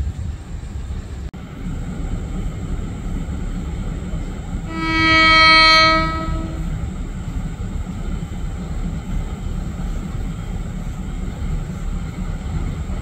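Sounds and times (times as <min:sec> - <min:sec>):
train horn blast: 0:04.7 - 0:06.8.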